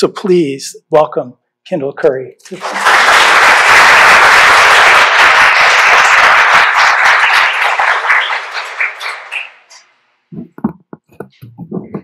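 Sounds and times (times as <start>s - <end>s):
audience applauding: 2.4s - 9.8s.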